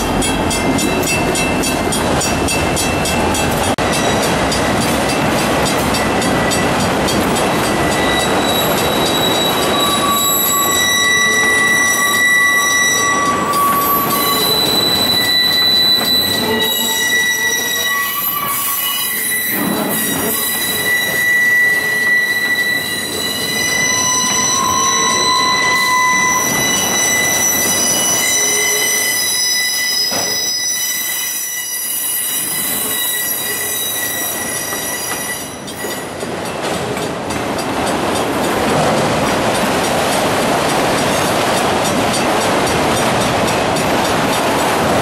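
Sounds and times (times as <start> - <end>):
rumble of train cars: 0.0 - 45.0
train wheels squealing: 5.8 - 36.6.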